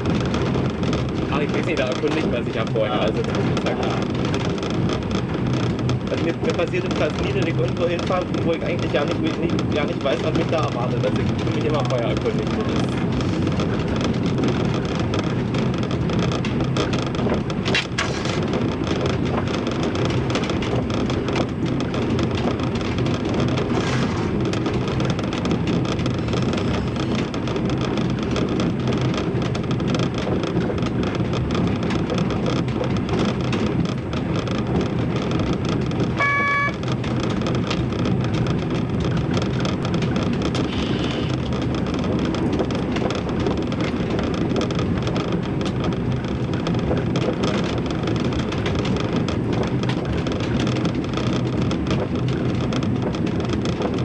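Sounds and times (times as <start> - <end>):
railbus engine and wheels rumbling: 0.0 - 54.0
train horn toot: 36.2 - 36.8.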